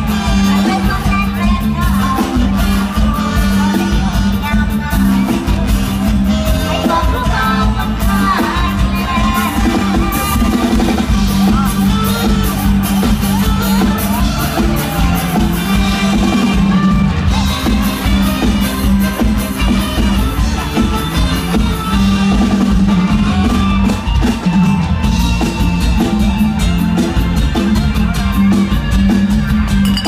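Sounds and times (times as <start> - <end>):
woman singing: 0.0 - 17.0
live band over loudspeakers: 0.0 - 30.0.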